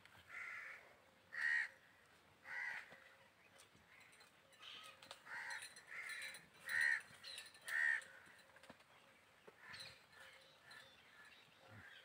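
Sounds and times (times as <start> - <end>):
crow cawing: 0.3 - 1.8, 2.4 - 3.0, 7.7 - 8.3.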